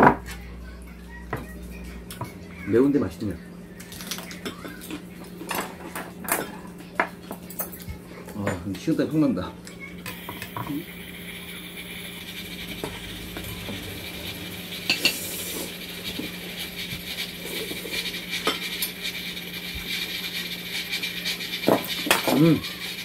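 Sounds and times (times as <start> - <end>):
steady background hum: 0.0 - 23.0
utensils tapping against bowls: 3.8 - 8.7, 12.2 - 23.0.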